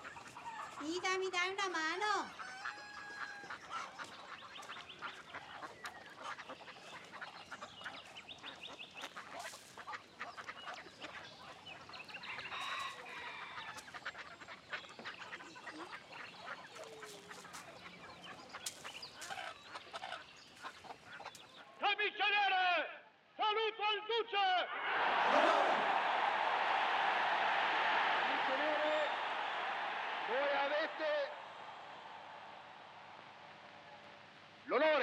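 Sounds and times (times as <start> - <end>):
ducks quacking: 0.0 - 21.8, 24.9 - 34.7
hens clucking: 0.0 - 21.8, 28.3 - 29.2.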